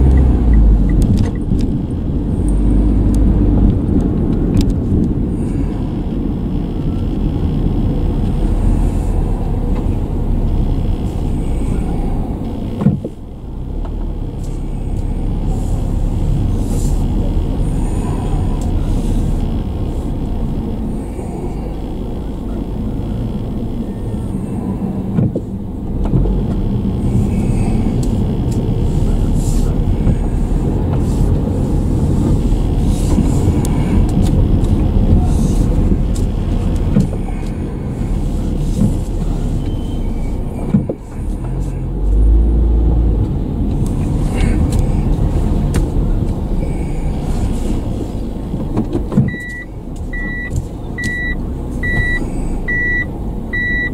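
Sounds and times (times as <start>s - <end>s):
car cabin engine and tyre rumble: 0.0s - 53.9s.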